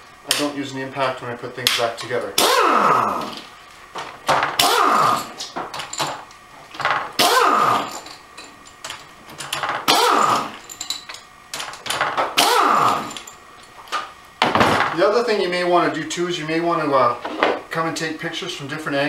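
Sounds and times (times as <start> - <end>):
pneumatic impact wrench bursts: 2.4 - 3.4, 4.5 - 5.5, 7.2 - 8.1, 9.8 - 10.7, 12.3 - 13.3.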